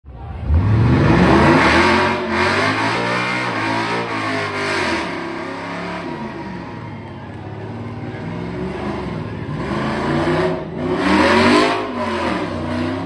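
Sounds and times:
truck engine revving hard: 0.2s - 6.9s, 8.1s - 13.0s.

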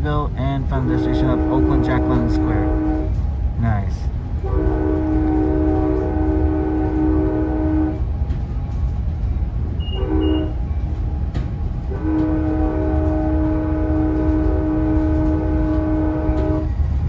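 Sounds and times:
train rumble: 0.0s - 17.0s
train horn blasts: 0.9s - 3.2s, 4.4s - 8.2s, 9.8s - 10.8s, 11.8s - 16.8s.

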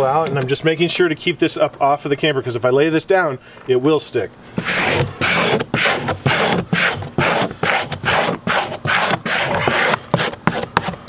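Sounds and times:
squeegee rubbing over paper: 4.6s - 11.0s.

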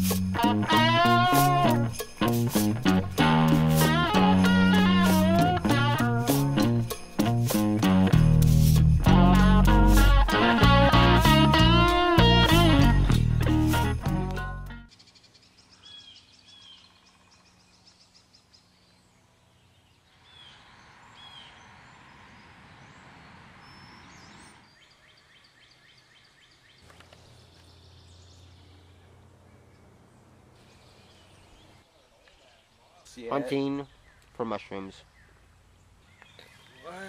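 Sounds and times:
guitar music: 0.0s - 14.9s.

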